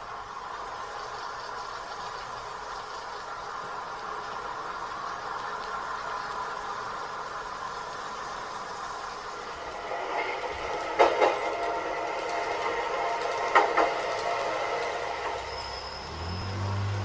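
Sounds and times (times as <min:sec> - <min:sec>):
train humming along track: 0:00.0 - 0:17.0
wheels clicking over rail joints: 0:00.0 - 0:17.0.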